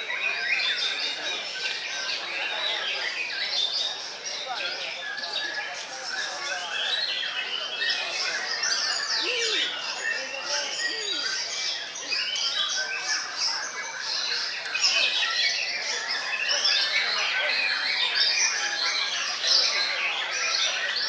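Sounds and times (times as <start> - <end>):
songbirds singing: 0.0 - 21.0.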